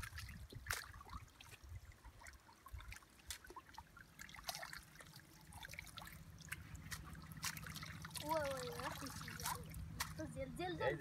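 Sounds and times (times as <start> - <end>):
small water splashes: 0.0 - 11.0
water trickling: 0.0 - 11.0.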